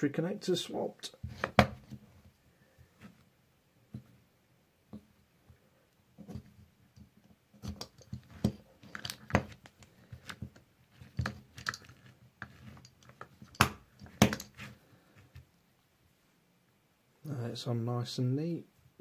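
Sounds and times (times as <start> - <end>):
plastic connector freed: 7.6 - 10.5.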